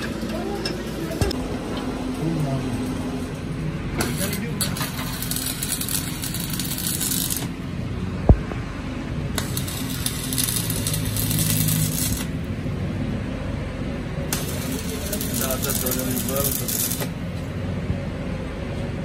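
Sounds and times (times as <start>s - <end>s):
steady low hum: 0.0s - 19.0s
welding arc crackle and sizzle: 1.1s - 7.7s, 9.3s - 12.6s, 14.3s - 17.5s.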